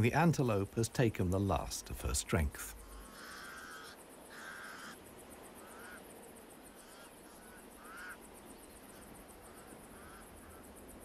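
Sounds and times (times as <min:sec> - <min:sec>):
crows calling: 0:02.8 - 0:10.8.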